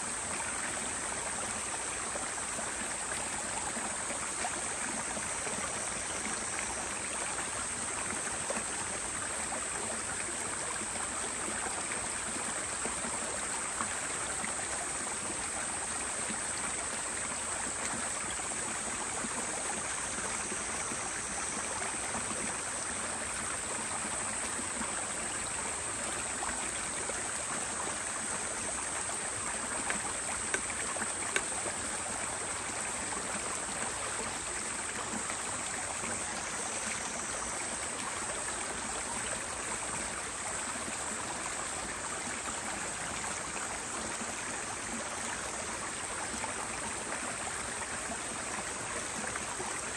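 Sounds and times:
stream flowing: 0:00.0 - 0:49.9
faint clicks: 0:29.8 - 0:31.7.

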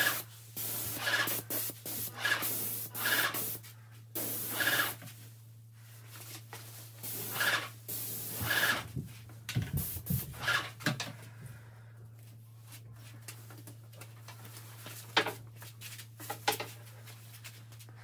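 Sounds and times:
paint sprayer hissing: 0:00.0 - 0:05.1, 0:07.0 - 0:08.9, 0:09.7 - 0:10.5.

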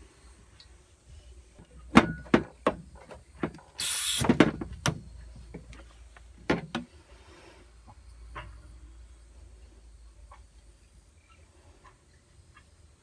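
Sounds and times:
gas hissing: 0:03.8 - 0:04.4.

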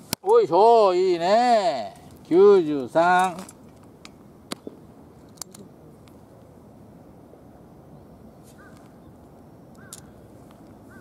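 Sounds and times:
distant crow calling: 0:08.5 - 0:09.1, 0:09.8 - 0:11.0.

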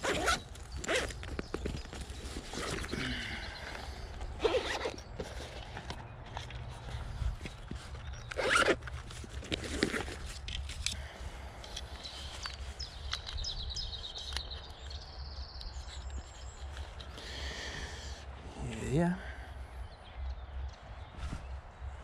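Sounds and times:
zipper rasping: 0:00.0 - 0:01.2, 0:02.2 - 0:03.7, 0:04.3 - 0:05.7, 0:08.2 - 0:10.5
rustling handling noise: 0:00.0 - 0:17.2.

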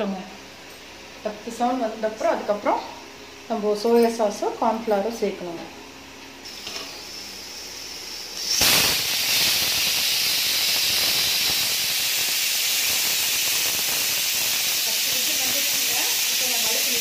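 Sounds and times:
pressure cooker steam jet: 0:06.4 - 0:17.0.

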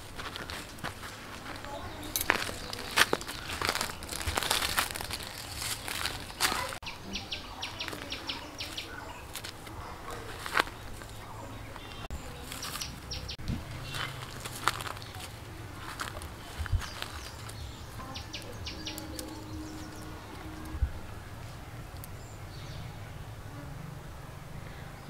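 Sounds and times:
footsteps crunching on dry leaves: 0:00.0 - 0:06.8, 0:07.8 - 0:20.6
rustling through undergrowth: 0:00.0 - 0:23.0
bird chirping: 0:01.7 - 0:14.3, 0:16.4 - 0:23.4.

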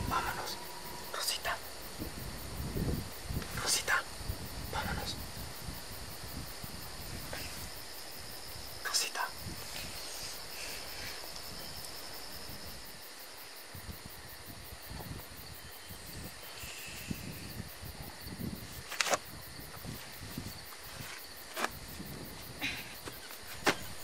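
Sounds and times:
insects chirring: 0:00.0 - 0:24.0
soft rustling and bumps: 0:23.0 - 0:24.0.

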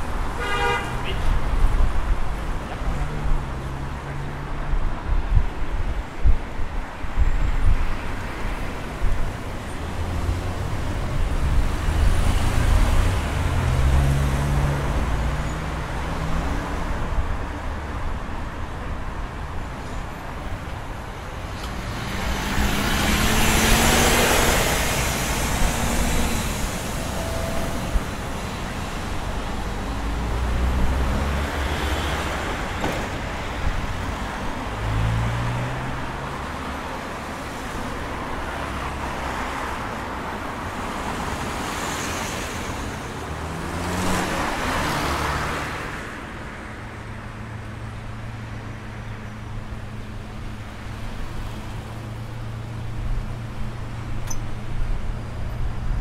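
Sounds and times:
cars driving past: 0:08.4 - 0:17.9, 0:21.4 - 0:56.0
bus passing close by: 0:21.3 - 0:56.0.

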